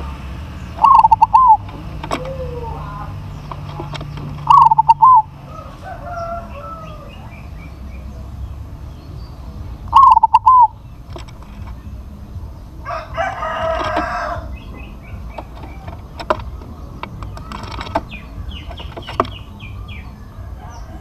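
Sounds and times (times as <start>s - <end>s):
small birds chirping: 0.0s - 21.0s
sharp clicks: 0.7s - 2.5s, 3.2s - 5.3s, 9.9s - 12.1s, 13.3s - 19.8s
rooster crowing: 2.1s - 3.3s, 4.5s - 7.8s, 12.8s - 15.9s, 19.7s - 21.0s.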